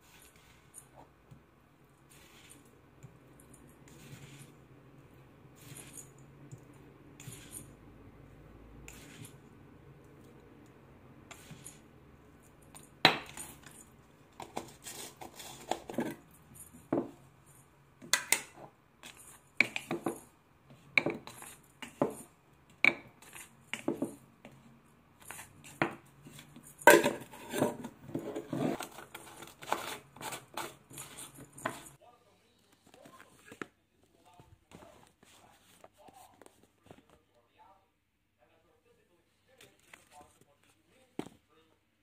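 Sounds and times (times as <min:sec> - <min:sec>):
glass jars clinking: 0:26.8 - 0:27.9.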